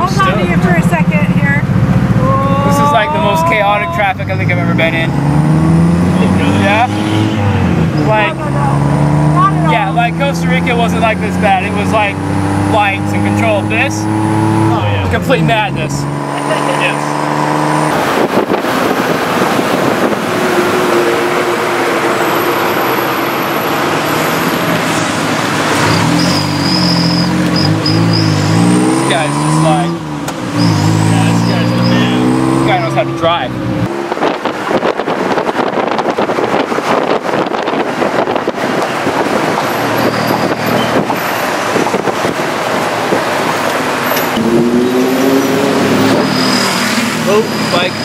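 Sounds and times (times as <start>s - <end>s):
traffic noise: 0.0s - 48.0s
tuk tuk engine and road noise: 0.0s - 48.0s
wind buffeting microphone: 17.4s - 22.3s, 33.6s - 46.3s.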